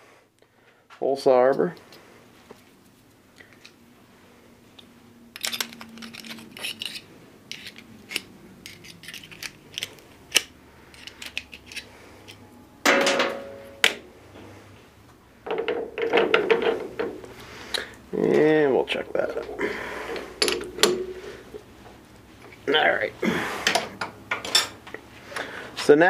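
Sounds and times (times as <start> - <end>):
metal tools clinking: 24.4 - 24.8.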